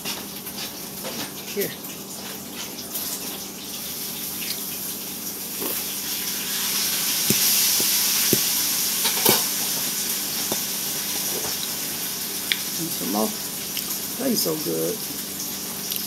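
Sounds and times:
meat sizzling in a pan: 0.4 - 16.0.

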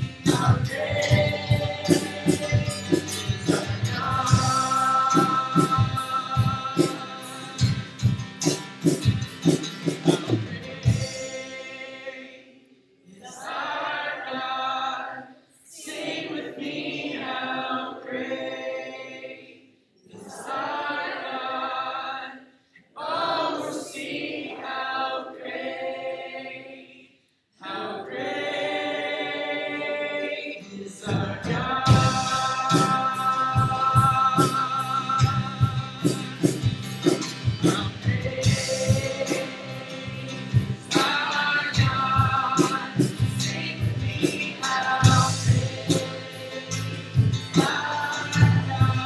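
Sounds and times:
band with drums and bass: 0.0 - 11.6, 31.0 - 49.0
group singing church song: 0.0 - 49.0.

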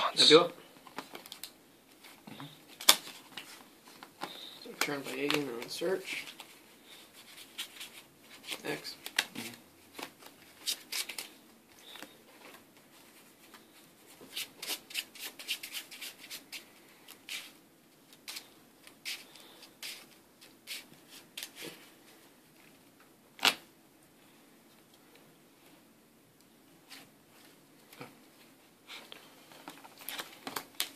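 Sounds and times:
cards being shuffled: 0.8 - 6.6, 7.2 - 12.6, 13.4 - 21.8, 29.5 - 30.9.

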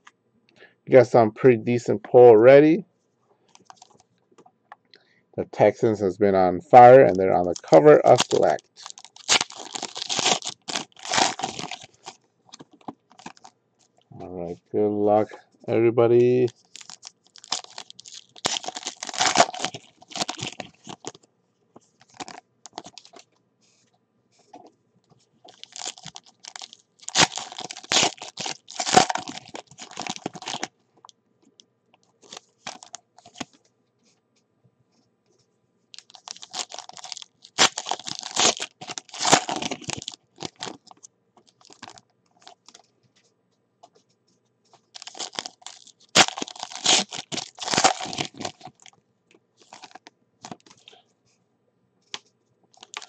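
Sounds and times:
foil wrappers crinkling and tearing: 3.6 - 4.0, 7.3 - 13.9, 16.3 - 21.2, 22.0 - 23.3, 25.5 - 30.7, 32.2 - 33.5, 36.0 - 42.8, 44.8 - 49.0, 49.6 - 51.0, 52.7 - 53.0.

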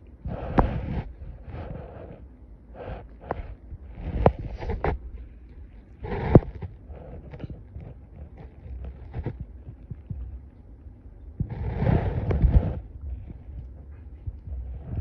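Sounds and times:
rustling of fur and bedding: 2.8 - 10.5, 11.4 - 15.0.

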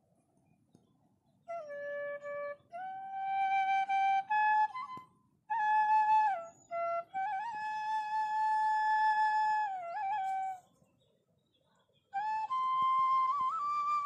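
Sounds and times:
solo flute melody: 1.4 - 10.7, 12.1 - 14.0.

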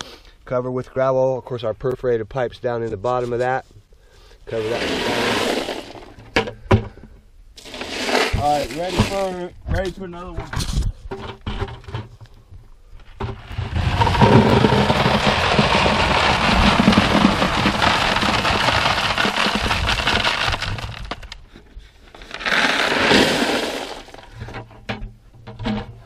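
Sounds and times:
gravel pouring into plastic bucket: 4.5 - 6.2, 7.6 - 9.4, 13.4 - 21.4, 22.1 - 24.4.

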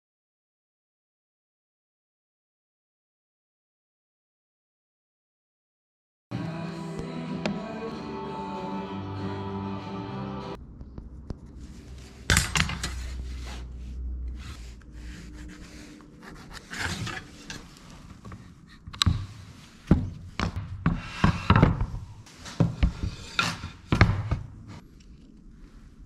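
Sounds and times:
pencil and straightedge scraping wood: 11.6 - 21.7, 22.4 - 24.0.

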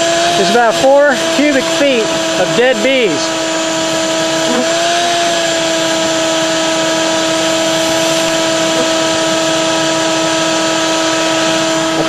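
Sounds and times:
vacuum whine and rushing air: 0.0 - 12.0.

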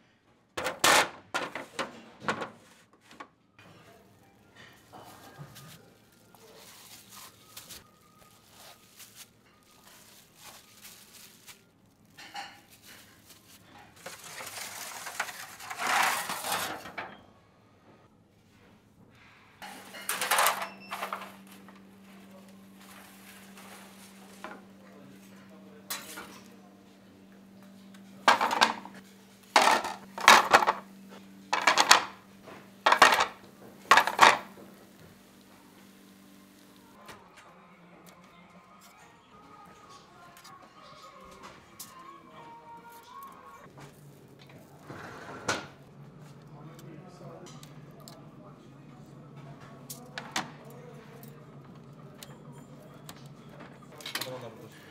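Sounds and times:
pans clattering onto plates: 0.6 - 2.6, 19.6 - 21.4, 28.3 - 29.0, 29.6 - 30.9, 31.6 - 32.2, 32.9 - 34.6
metal peel scraping oven floor: 13.9 - 17.2, 32.9 - 34.5, 44.8 - 45.7.

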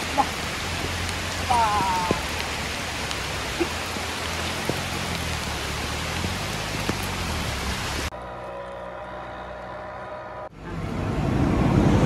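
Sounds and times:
rain falling on wet road: 0.0 - 8.1.

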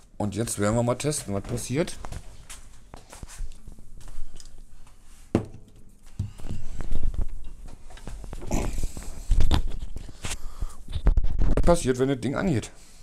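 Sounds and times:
footsteps: 0.4 - 11.7
objects thumping on desk: 5.4 - 5.6.

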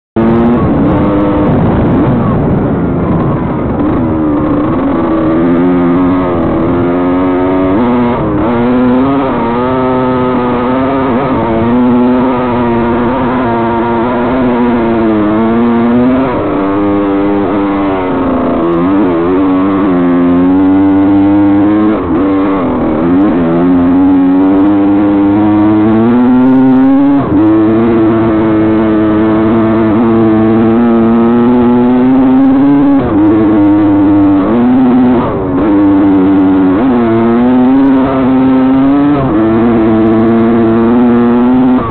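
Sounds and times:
rumble of the ride: 0.2 - 9.0
dirt bike engine revving: 0.2 - 41.9.

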